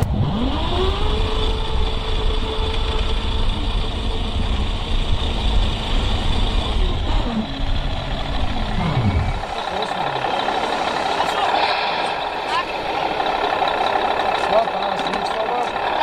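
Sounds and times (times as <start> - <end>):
low rumble: 0.0 - 9.8
model truck motor whine: 0.0 - 11.3.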